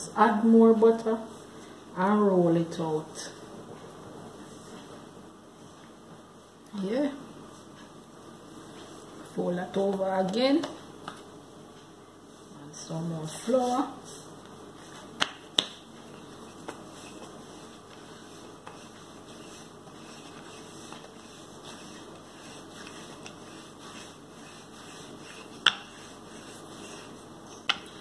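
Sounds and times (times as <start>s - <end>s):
rolling pin rolling dough: 12.8s - 28.0s.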